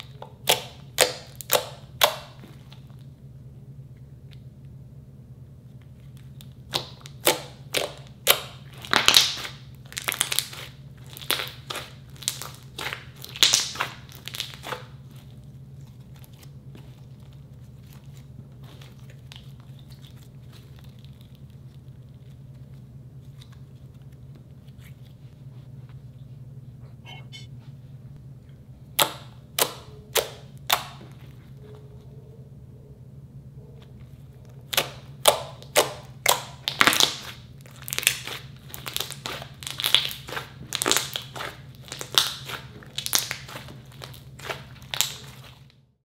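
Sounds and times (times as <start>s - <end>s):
steady low hum: 0.0s - 46.0s
slime squeezed with crackling pops: 6.6s - 15.2s, 34.7s - 45.6s.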